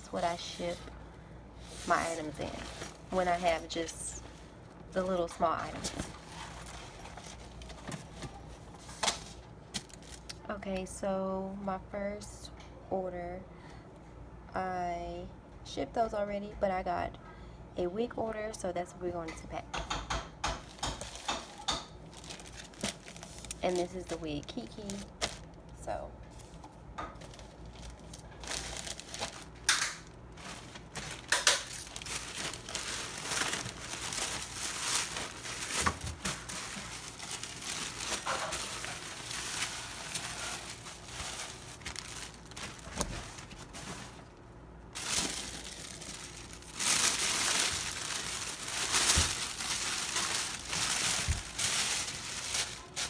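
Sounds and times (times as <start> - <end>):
paper and plastic bag crinkling: 0.0 - 0.9, 1.6 - 10.4, 20.6 - 53.0.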